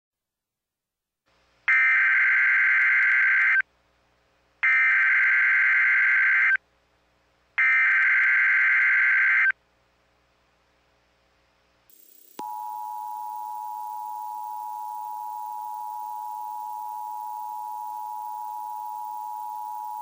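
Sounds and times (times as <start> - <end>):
digital data tone bursts: 11.9 - 20.0.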